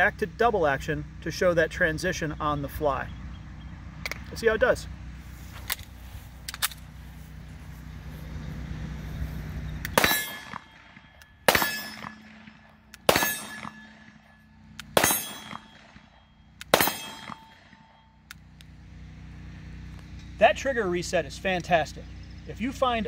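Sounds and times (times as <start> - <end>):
pistol shots: 9.9 - 18.0.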